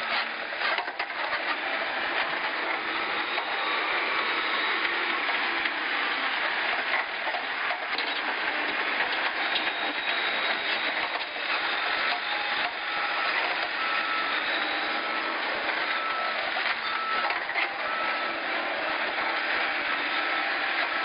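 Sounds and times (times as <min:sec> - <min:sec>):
diesel engine running: 0:00.0 - 0:21.0
reversing alarm beeping: 0:01.5 - 0:07.1, 0:08.0 - 0:21.0.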